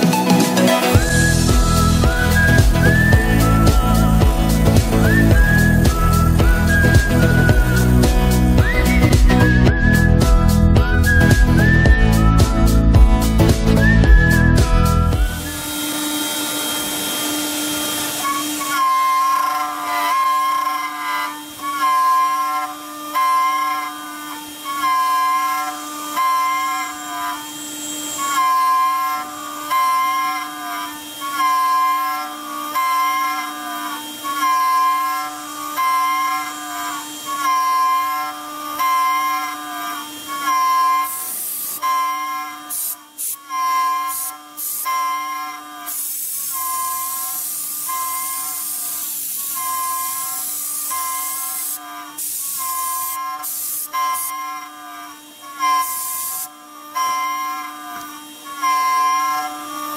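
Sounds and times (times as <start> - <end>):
ringing cutting tone: 0.0 - 17.4
spindle whine: 0.0 - 45.8, 46.4 - 54.9
high-pitched cutting squeal: 0.0 - 59.9.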